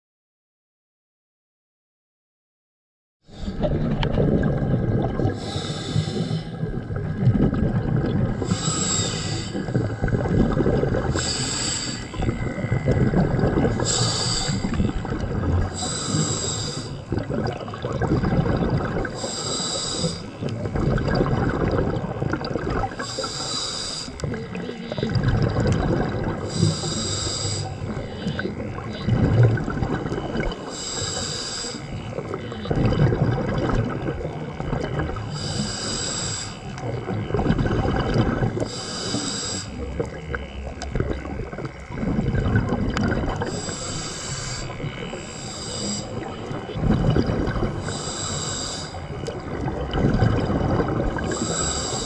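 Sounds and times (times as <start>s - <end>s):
exhaled bubbles rumbling: 3.3s - 52.0s
regulator inhalation hiss: 5.3s - 6.6s, 8.4s - 10.0s, 11.1s - 12.6s, 13.7s - 15.1s, 15.7s - 17.1s, 19.2s - 20.4s, 23.0s - 25.0s, 26.4s - 28.3s, 30.6s - 32.0s, 35.2s - 36.8s, 38.6s - 39.9s, 43.5s - 46.6s, 47.7s - 49.1s, 51.2s - 52.0s.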